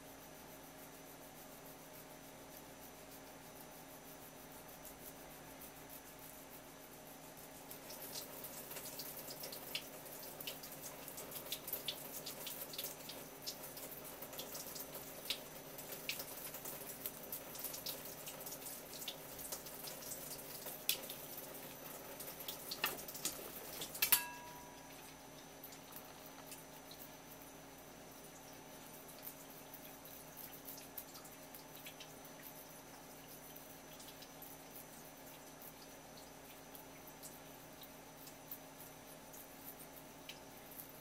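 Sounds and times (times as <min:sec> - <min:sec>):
metallic blade clink: 0:24.0 - 0:24.9.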